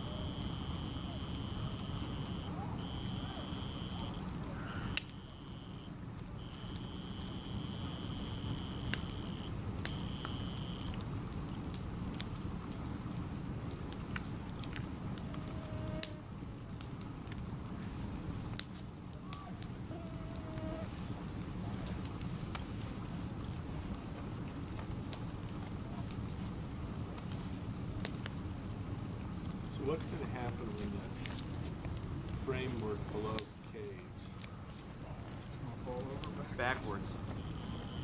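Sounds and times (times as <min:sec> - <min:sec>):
bonfire crackling and popping: 0:00.0 - 0:38.0
high insect trill: 0:00.0 - 0:38.0.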